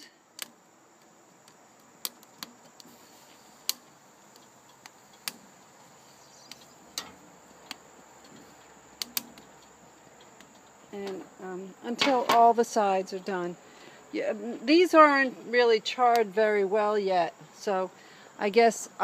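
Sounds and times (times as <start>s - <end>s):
faint high-pitched hiss: 0.0s - 19.0s
metal tongs clicking on grill: 3.6s - 5.4s, 6.4s - 7.8s, 9.0s - 10.4s.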